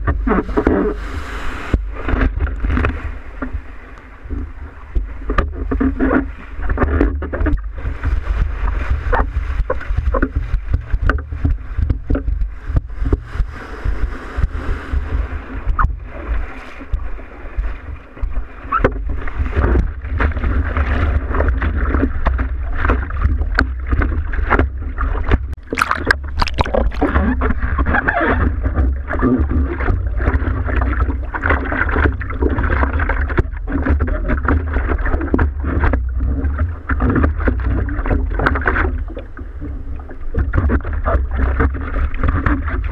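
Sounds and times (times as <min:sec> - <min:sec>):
water splashing against surfboard: 0:00.0 - 0:42.9
steady low rumble: 0:07.2 - 0:41.4.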